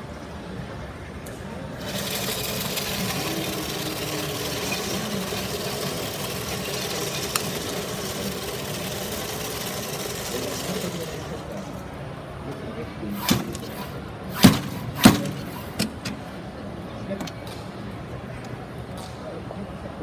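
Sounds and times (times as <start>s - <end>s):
ice-shaving machine hiss: 1.8s - 11.4s.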